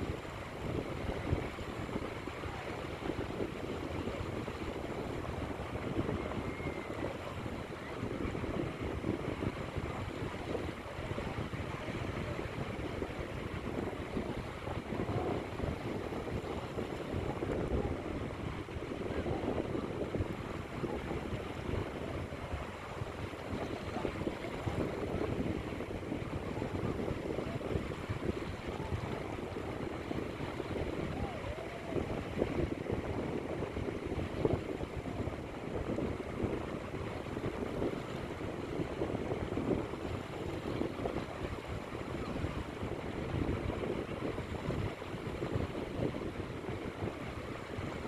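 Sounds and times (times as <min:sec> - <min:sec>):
small waves washing onto beach: 0:00.0 - 0:48.0
wind rumbling on microphone: 0:00.0 - 0:48.0.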